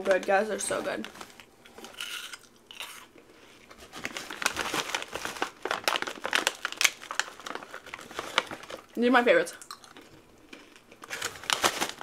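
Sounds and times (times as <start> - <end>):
plastic bag crinkling: 0.0 - 2.4, 3.6 - 9.0, 10.6 - 12.0
faint crunching of candy chewed: 9.6 - 11.3.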